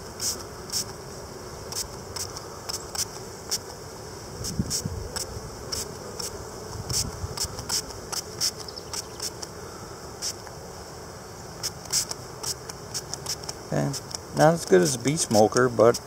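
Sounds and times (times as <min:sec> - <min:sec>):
bees humming: 0:00.0 - 0:16.0
spray bottle hissing: 0:00.2 - 0:01.0, 0:01.7 - 0:03.7, 0:04.4 - 0:09.5, 0:10.2 - 0:10.5, 0:11.6 - 0:14.2.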